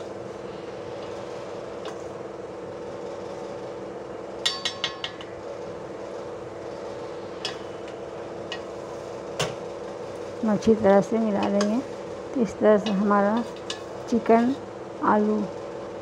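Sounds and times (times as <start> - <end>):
steady hum: 0.0 - 16.0
metal spoon clinking on pot: 4.4 - 5.3.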